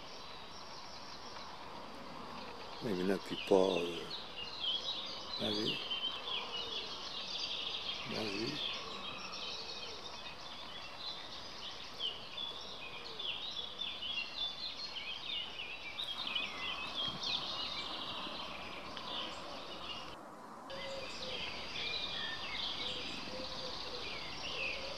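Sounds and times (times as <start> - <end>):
small birds chirping: 0.0 - 24.9.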